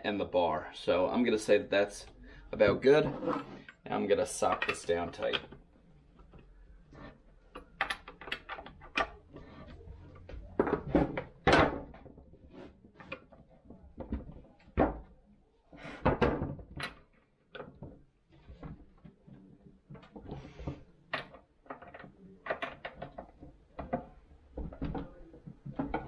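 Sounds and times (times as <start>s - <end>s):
clicks and scrapes on workbench: 3.0s - 3.8s.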